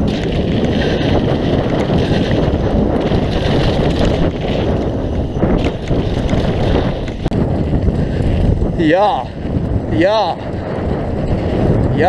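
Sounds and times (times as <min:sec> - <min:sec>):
bike knocking over rough ground: 0:00.0 - 0:08.8
bike tyre noise on dirt: 0:00.0 - 0:12.0
wind rushing over microphone: 0:00.0 - 0:12.0.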